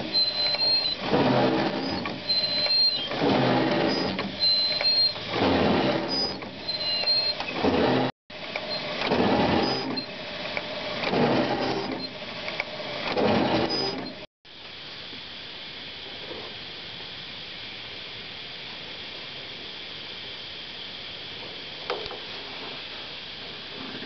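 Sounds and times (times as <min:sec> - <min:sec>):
wiper linkage squeak: 0:00.0 - 0:12.2, 0:13.0 - 0:14.2
windshield wiper motor running: 0:00.0 - 0:14.2.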